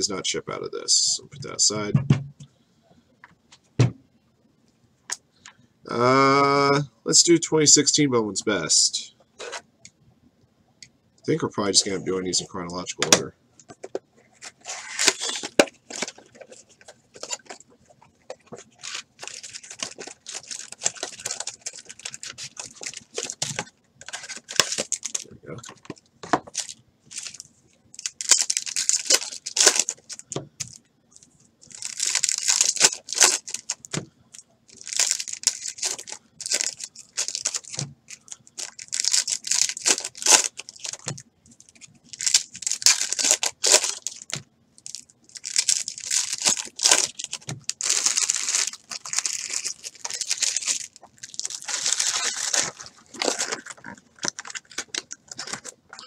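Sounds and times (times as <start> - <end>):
wrapper tearing and crinkling: 14.4 - 17.6, 18.4 - 30.8, 31.6 - 34.0, 34.7 - 55.8.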